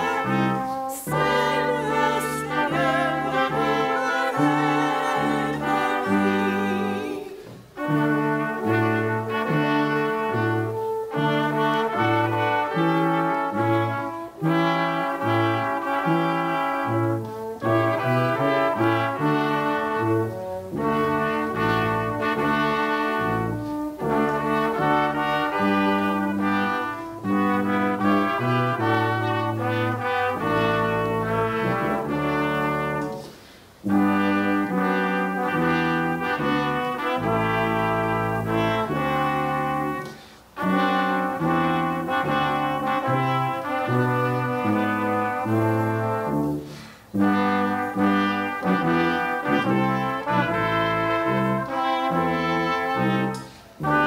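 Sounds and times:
brass ensemble playing slow chords: 0.0s - 54.0s.

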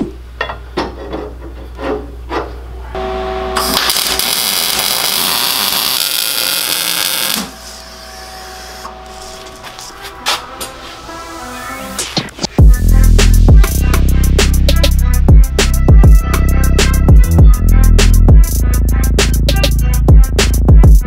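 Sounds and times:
band saw humming: 3.0s - 11.5s
welder crackling and sizzling: 3.6s - 7.6s.

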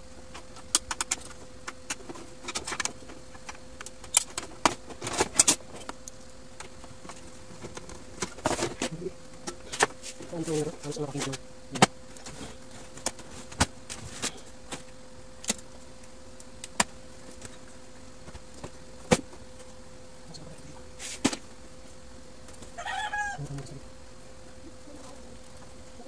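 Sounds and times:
faint steady hum: 0.0s - 26.0s
chicken calling: 22.8s - 23.8s.

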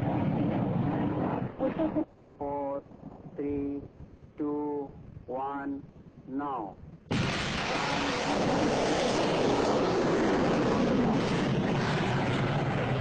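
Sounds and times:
rocket booster roaring: 0.0s - 2.0s, 7.1s - 13.0s.

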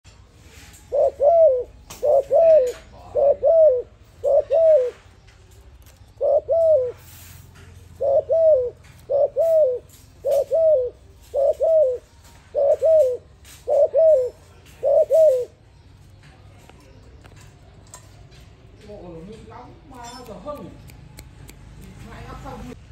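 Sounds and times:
dove cooing: 0.8s - 5.1s, 5.9s - 7.2s, 7.8s - 15.6s.

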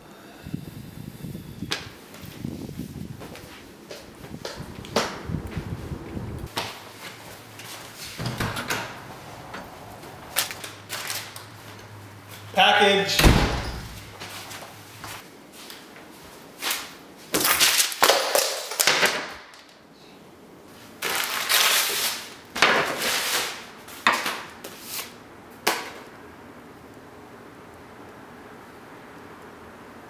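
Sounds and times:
wrapping paper tearing and crumpling: 10.4s - 11.6s, 21.0s - 23.7s.

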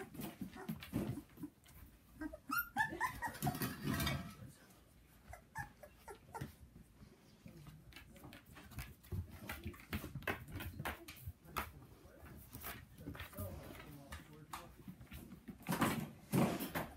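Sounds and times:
puppies whimpering squeaks: 0.0s - 4.1s, 5.2s - 6.7s
puppy paws clicking and scrabbling: 0.0s - 4.4s, 5.2s - 16.9s.

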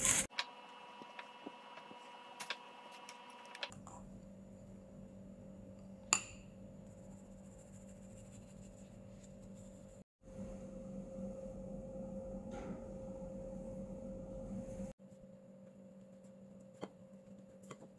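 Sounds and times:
low steady hum: 3.7s - 17.9s.

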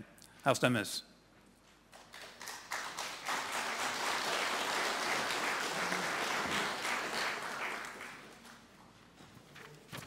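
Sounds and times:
crowd applauding: 2.0s - 8.6s.

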